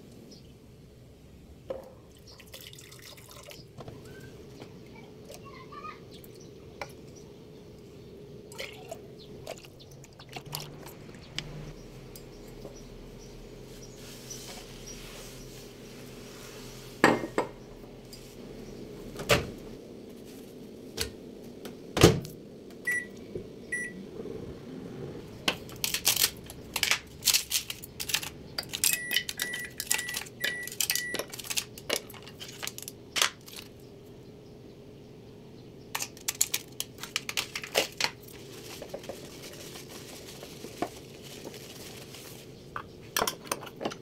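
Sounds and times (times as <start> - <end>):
microwave keypad beeps: 22.9 - 24.0, 29.0 - 31.3
clicks and clatter: 25.5 - 33.7, 35.9 - 38.3.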